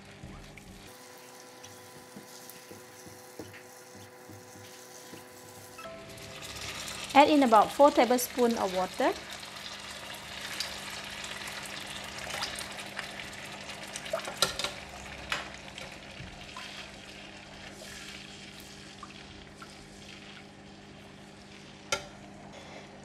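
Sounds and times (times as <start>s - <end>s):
sauce sizzling in wok: 0.9s - 13.9s, 14.8s - 22.3s
spatula scraping and tapping: 1.9s - 5.5s.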